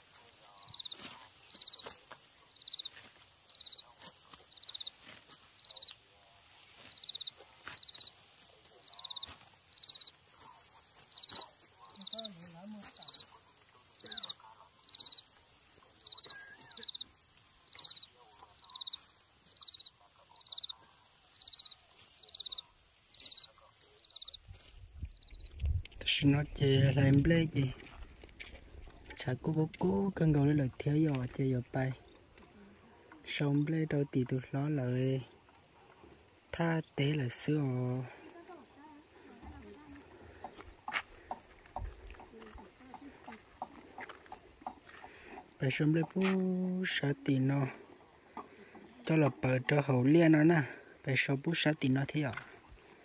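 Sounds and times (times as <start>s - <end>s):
sickles cutting rice stalks: 0.0s - 33.8s
insect chirping: 0.0s - 53.0s.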